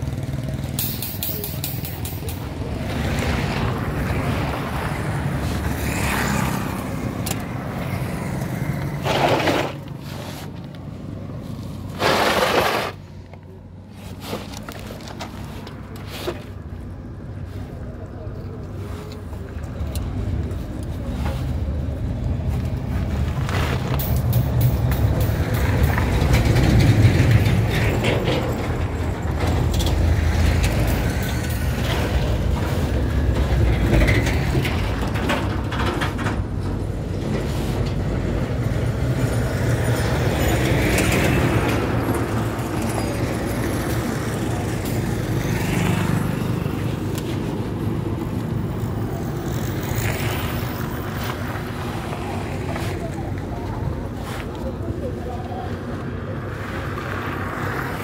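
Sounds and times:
vehicle engine rumble: 0.0s - 58.0s.

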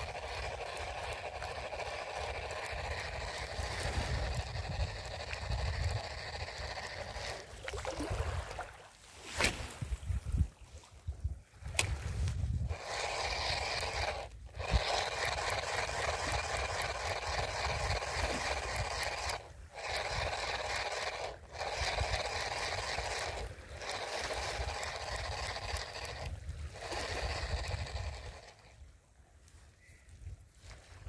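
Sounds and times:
fishing reel whirring: 0.0s - 8.2s, 11.8s - 28.9s
wind rumble on microphone: 9.5s - 12.8s.

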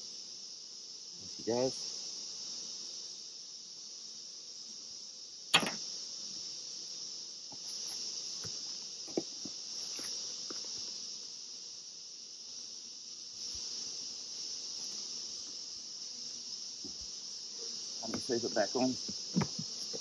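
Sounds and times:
insect chorus chirring: 0.0s - 20.0s
sharp knock on hive box: 5.5s - 6.0s, 8.4s - 10.6s, 16.8s - 17.1s, 18.0s - 18.4s, 19.0s - 20.0s.

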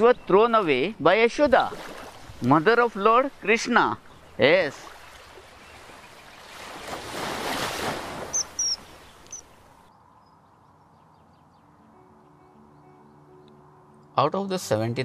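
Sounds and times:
water rushing: 0.6s - 9.8s
short high bird chirps: 8.3s - 9.5s.

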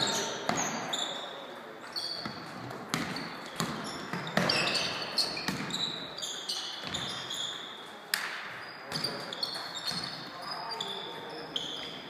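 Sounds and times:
sneakers squeaking on floor: 0.0s - 12.0s
basketball bouncing: 2.2s - 5.9s.

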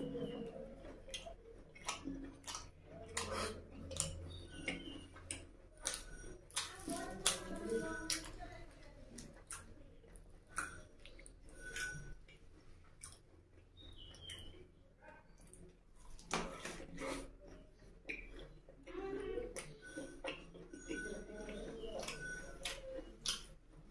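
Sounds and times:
wet chewing and mouth smacks: 1.0s - 8.4s, 9.2s - 14.6s, 19.6s - 23.6s.

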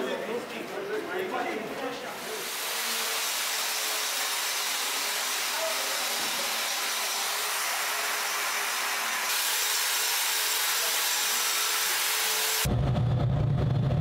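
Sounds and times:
angle grinder grinding metal: 2.3s - 12.7s
low rumble: 12.7s - 14.0s.

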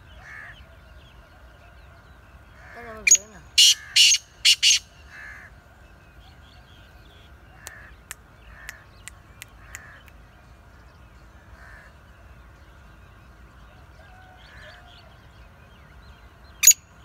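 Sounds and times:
bird harsh grating calls: 2.6s - 5.5s.

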